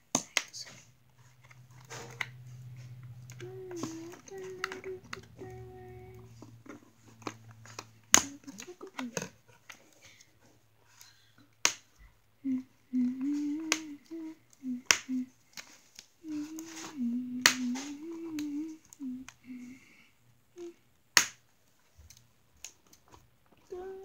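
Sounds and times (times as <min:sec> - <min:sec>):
child humming: 0:01.9 - 0:09.3, 0:12.4 - 0:15.4, 0:16.2 - 0:20.8, 0:23.6 - 0:24.0
scissors cutting packaging: 0:03.2 - 0:06.2, 0:07.0 - 0:09.8.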